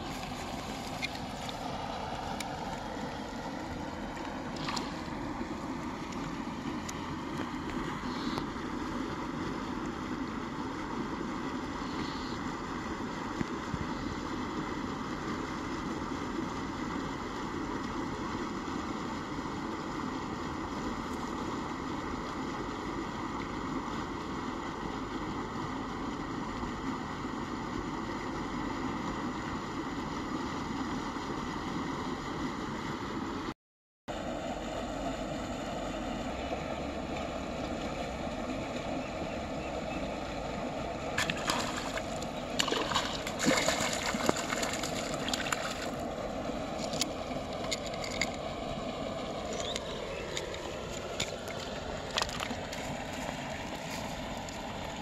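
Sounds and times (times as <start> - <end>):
fish splashing at water surface: 41.2 - 46.1.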